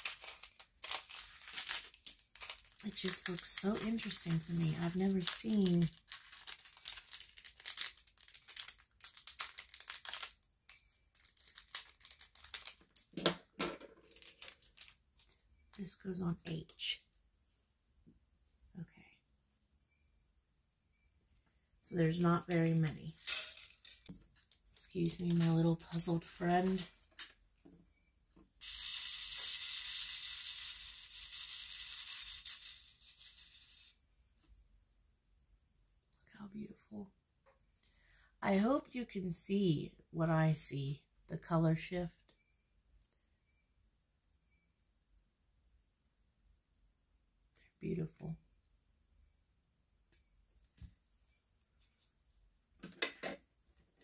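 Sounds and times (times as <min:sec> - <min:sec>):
beads rattling in plastic tray: 0:00.0 - 0:10.4, 0:14.0 - 0:15.4, 0:22.4 - 0:24.1, 0:28.6 - 0:33.9
plastic bag crinkling: 0:00.0 - 0:13.2, 0:14.0 - 0:15.4, 0:22.4 - 0:27.3.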